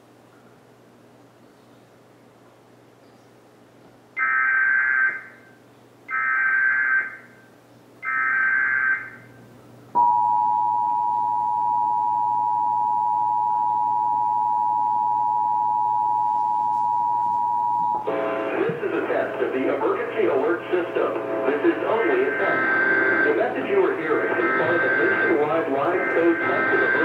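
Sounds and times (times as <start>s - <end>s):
two-tone attention signal: 10.0s - 18.3s, 22.1s - 27.0s
screeching digital data bursts: 22.1s - 27.0s.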